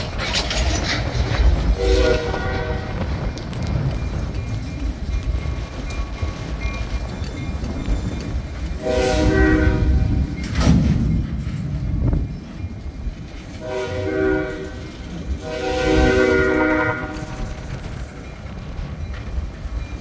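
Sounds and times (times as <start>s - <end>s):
freight cars rumbling and clattering: 0.0s - 20.0s
locomotive horn blasts: 1.8s - 3.1s, 8.8s - 10.2s, 13.6s - 17.5s.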